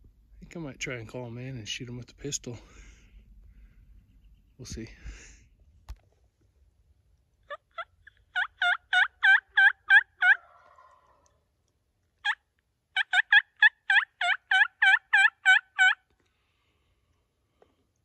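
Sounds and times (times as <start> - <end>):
turkey call yelps: 7.4 - 11.4, 12.2 - 16.1.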